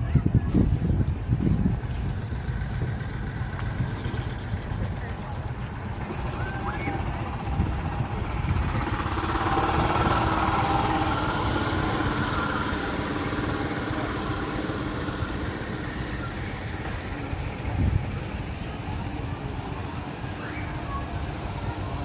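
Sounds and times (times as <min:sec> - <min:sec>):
engine running: 0:00.0 - 0:22.0.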